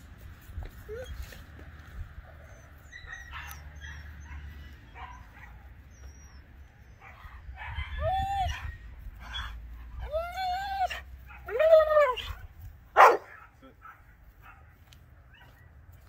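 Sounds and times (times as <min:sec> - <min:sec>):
dog whining: 0:00.8 - 0:01.4.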